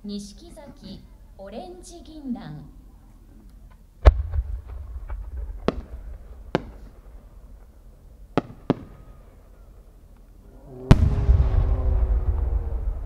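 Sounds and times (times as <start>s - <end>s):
firework boom echoing: 4.0s - 9.4s, 10.9s - 13.0s
firework cracks: 4.0s - 10.2s.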